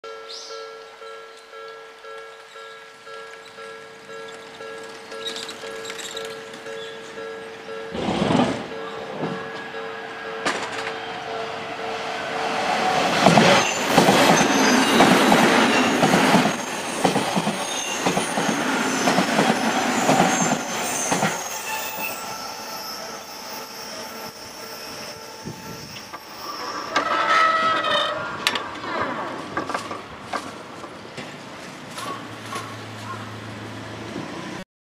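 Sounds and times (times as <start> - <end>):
squealing with ringing tones: 2.3 - 7.6, 13.5 - 28.5
train wheels clattering: 3.3 - 7.3, 10.4 - 11.1, 13.0 - 24.5.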